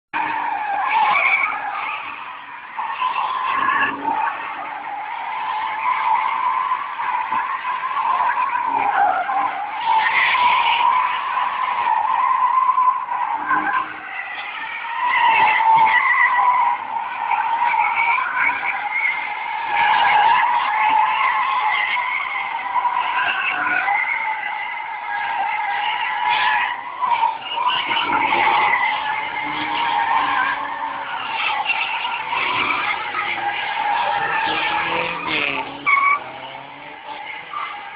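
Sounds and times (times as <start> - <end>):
tyres screeching: 13.8 - 37.9
car engine revving hard: 27.7 - 37.9.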